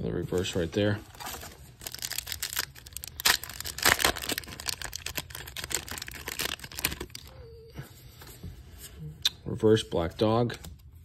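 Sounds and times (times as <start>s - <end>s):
foil pack crinkling and tearing: 1.1s - 7.3s.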